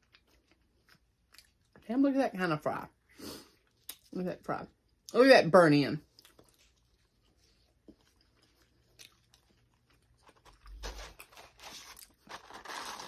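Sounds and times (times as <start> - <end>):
crunchy chewing of fries: 0.0 - 1.8, 6.0 - 13.0.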